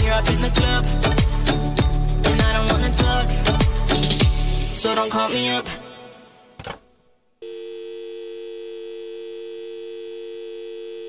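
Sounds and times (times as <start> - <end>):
telephone dial tone: 7.4 - 11.0.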